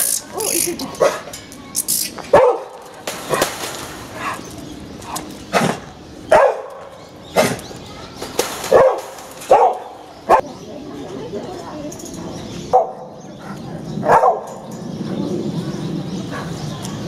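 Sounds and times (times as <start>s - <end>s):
dog barking: 2.3s - 3.4s, 5.6s - 7.6s, 8.7s - 10.4s, 12.7s - 13.2s, 14.0s - 14.6s.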